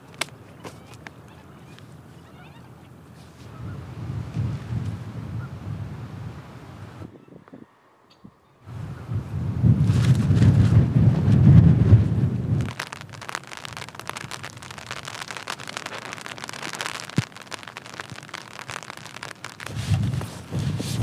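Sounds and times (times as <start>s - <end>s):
rain on tent fabric: 0.0s - 0.3s, 9.6s - 21.0s
wind buffeting microphone: 3.4s - 21.0s.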